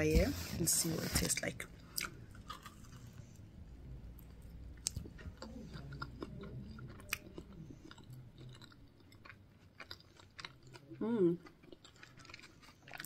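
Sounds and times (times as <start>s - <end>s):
person chewing: 1.8s - 3.4s, 4.1s - 13.0s.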